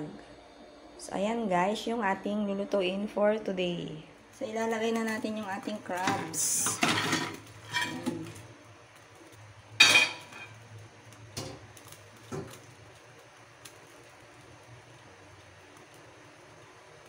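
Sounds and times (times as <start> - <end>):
crab shells clattering in a wok: 6.0 - 8.4.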